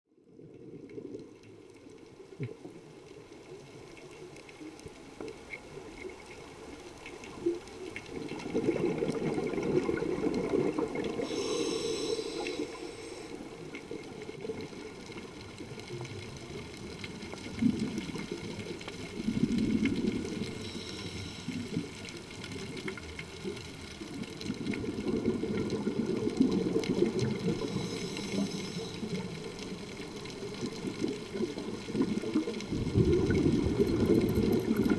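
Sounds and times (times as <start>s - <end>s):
underwater bubbling: 0.1s - 34.9s.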